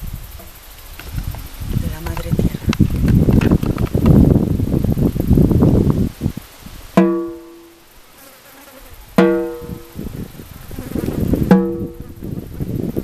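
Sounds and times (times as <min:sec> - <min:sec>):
frame drum struck with a beater: 0:07.0 - 0:07.8, 0:09.2 - 0:09.9, 0:11.4 - 0:12.1.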